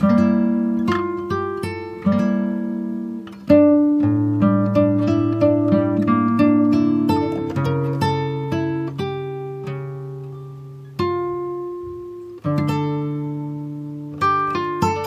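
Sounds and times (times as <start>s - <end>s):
plucked string music: 0.0s - 15.0s.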